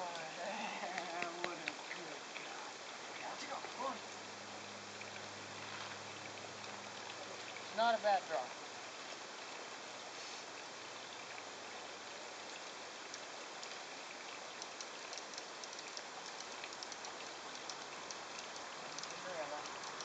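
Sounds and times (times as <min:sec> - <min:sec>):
outdoor background hiss: 0:00.0 - 0:20.0
faint high ticks: 0:12.4 - 0:20.0.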